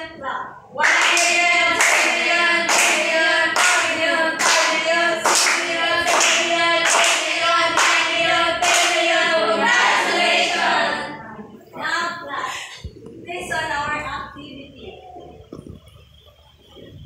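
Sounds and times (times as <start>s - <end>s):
clapping on the beat: 0.8s - 9.0s
students chanting in unison: 0.8s - 11.2s.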